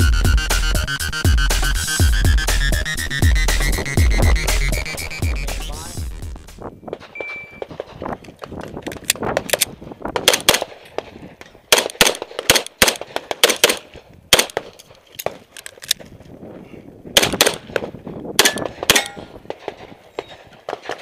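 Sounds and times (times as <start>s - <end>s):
pistol firing rapid shots: 10.2s - 11.1s, 11.7s - 15.4s, 17.2s - 21.0s.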